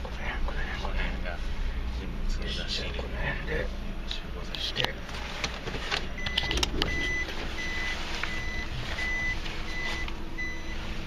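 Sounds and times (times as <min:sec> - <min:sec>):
low engine hum: 0:00.0 - 0:11.0
reverse warning beeps: 0:06.2 - 0:10.9.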